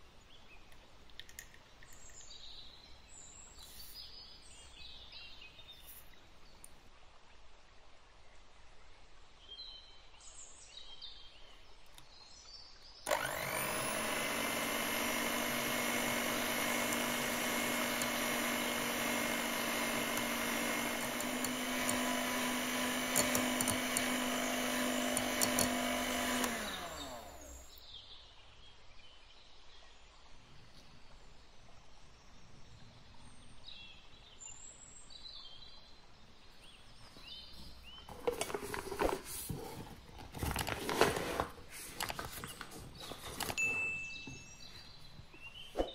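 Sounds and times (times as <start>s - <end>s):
electric hand mixer motor: 13.1s - 27.8s.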